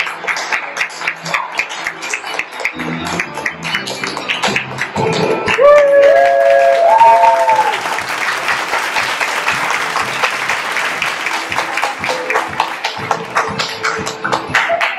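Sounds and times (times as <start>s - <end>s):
audience applauding: 0.0s - 14.9s.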